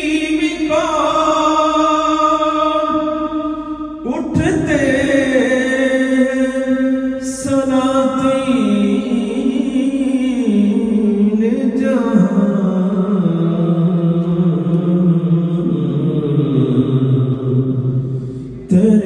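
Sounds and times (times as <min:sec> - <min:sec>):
man singing unaccompanied: 0:00.0 - 0:18.0, 0:18.6 - 0:19.0.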